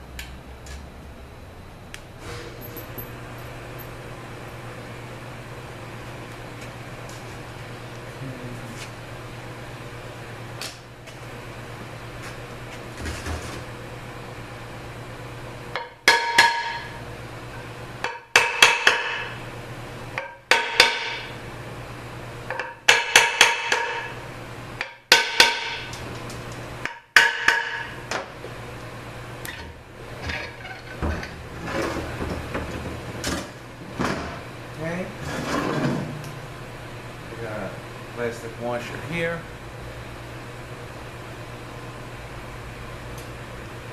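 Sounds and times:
hammer striking metal housing: 15.8s - 17.0s
metal knocks and scrapes: 30.2s - 34.4s, 35.2s - 36.2s.

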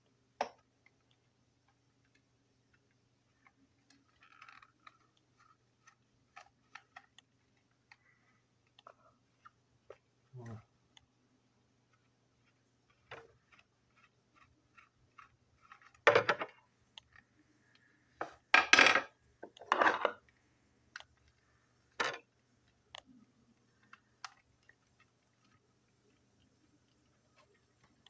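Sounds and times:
small hard parts clattering: 3.4s - 5.6s, 18.5s - 20.3s, 21.9s - 22.3s.

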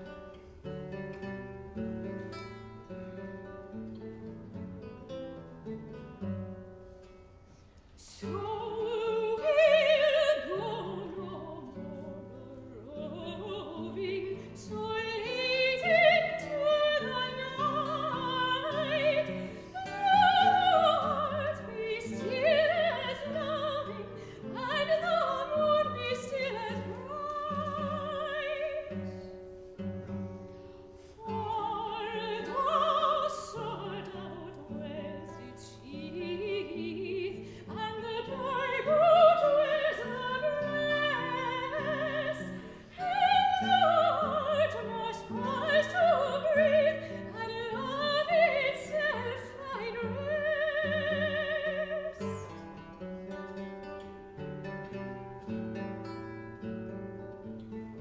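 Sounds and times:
guitar accompaniment: 0.0s - 58.0s
soprano singing operatically: 8.0s - 29.2s, 31.2s - 52.6s.

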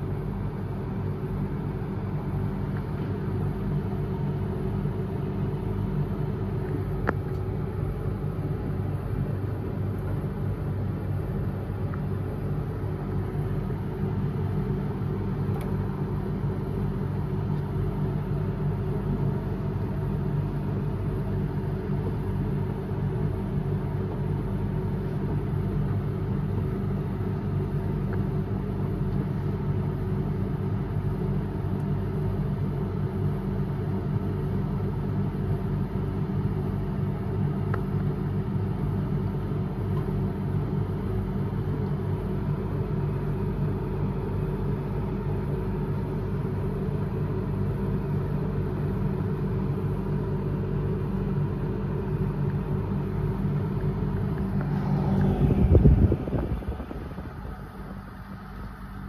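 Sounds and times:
low motor hum: 0.0s - 59.0s.

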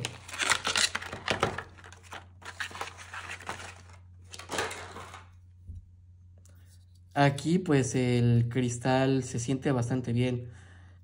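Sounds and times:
plastic packaging crinkling: 0.0s - 5.4s.

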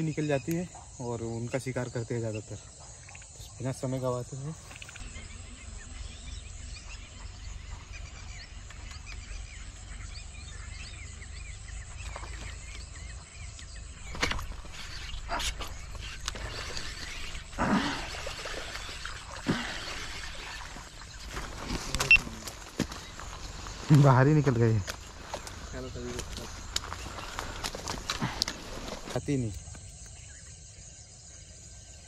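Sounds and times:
small birds chirping: 0.0s - 32.0s
sharp knocks and rustles: 14.0s - 17.5s.

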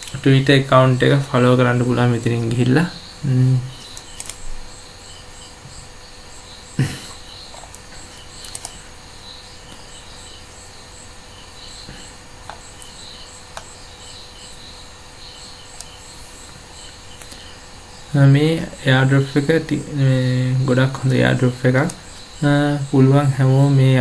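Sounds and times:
sharp clicks: 0.0s - 0.3s, 3.8s - 4.5s, 7.5s - 8.8s, 15.7s - 16.0s, 16.8s - 17.5s
insects chirping: 0.0s - 24.0s.

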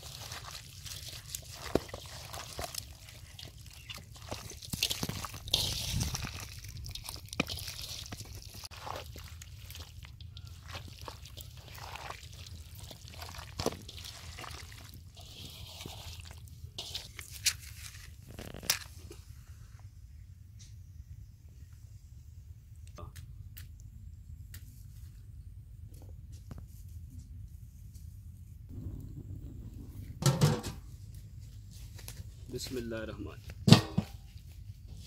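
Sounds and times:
hands squelching chicken in marinade: 0.0s - 18.2s.

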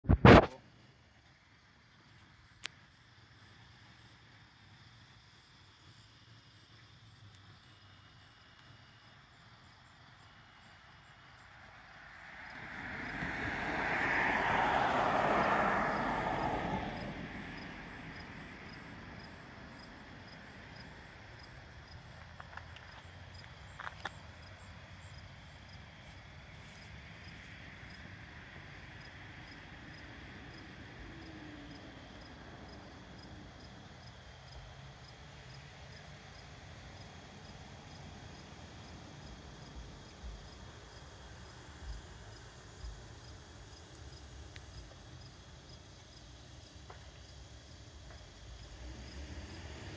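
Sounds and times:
crickets chirping: 0.4s - 49.9s
vehicle driving past: 11.4s - 21.2s, 48.2s - 49.9s.

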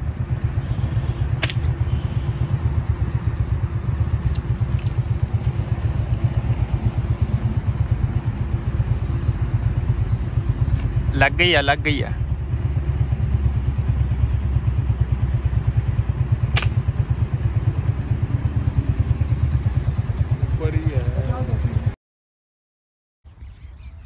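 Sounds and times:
steady low rumble: 0.0s - 21.9s
air rifle shot: 1.3s - 1.8s, 16.5s - 16.9s.

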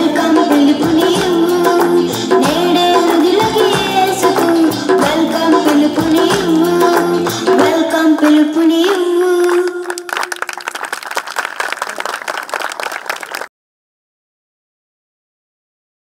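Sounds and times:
dance song with singing: 0.0s - 10.1s.

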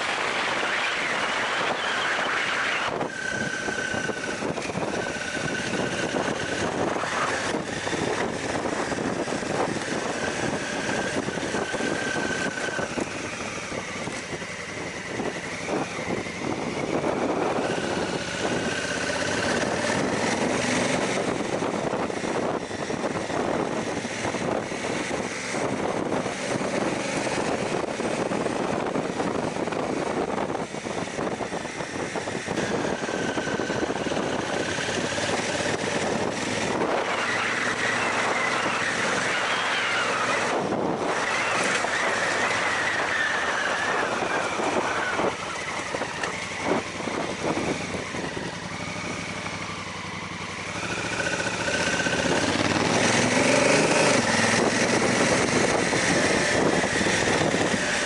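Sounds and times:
wind noise: 0.0s - 58.0s
motorcycle engine running: 3.0s - 58.0s
gravel ticking under tyres: 30.9s - 58.0s.

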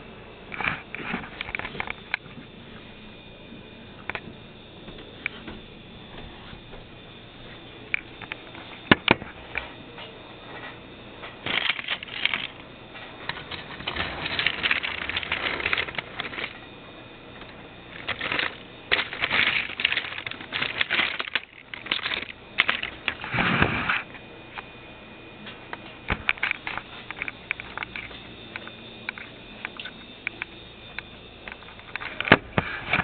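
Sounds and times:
toy trains clattering on plastic track: 11.4s - 12.6s, 13.3s - 16.6s, 17.9s - 23.2s.

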